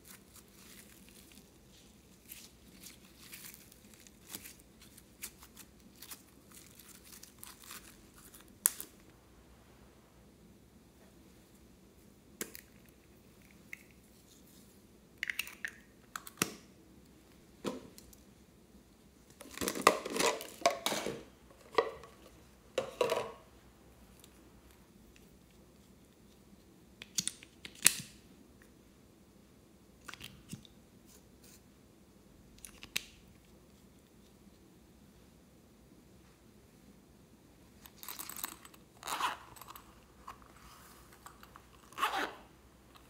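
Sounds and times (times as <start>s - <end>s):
crinkly rustling: 0.0s - 8.9s.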